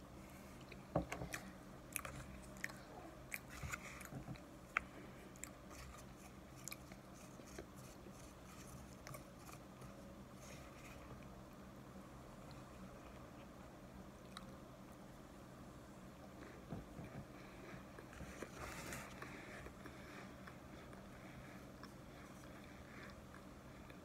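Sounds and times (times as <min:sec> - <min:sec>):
crunchy chewing: 0:00.6 - 0:11.3.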